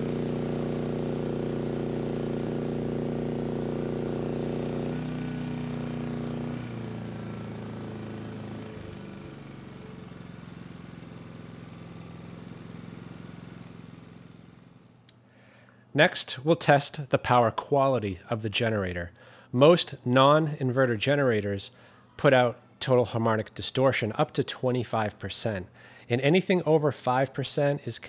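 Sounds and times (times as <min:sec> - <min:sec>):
generator engine running: 0:00.0 - 0:15.1.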